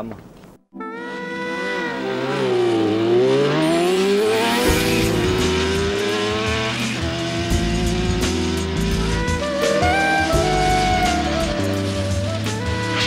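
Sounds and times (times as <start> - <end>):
engine revving: 1.1 - 13.0
music with low bass line: 4.7 - 13.0.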